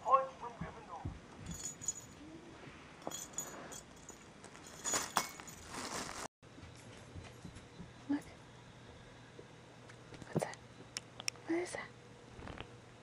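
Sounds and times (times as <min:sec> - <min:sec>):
bell jingling in toy ball: 0:01.4 - 0:02.2, 0:03.0 - 0:05.8
plastic bag crinkling: 0:04.8 - 0:06.3.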